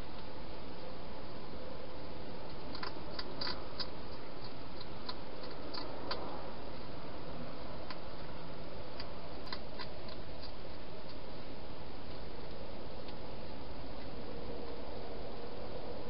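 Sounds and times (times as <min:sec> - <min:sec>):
hedgehog crunching food: 0:02.0 - 0:13.3.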